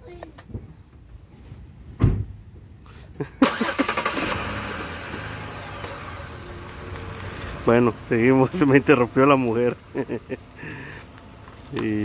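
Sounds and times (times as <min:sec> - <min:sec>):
low thump: 0:02.0 - 0:02.4
car engine running: 0:03.7 - 0:12.0.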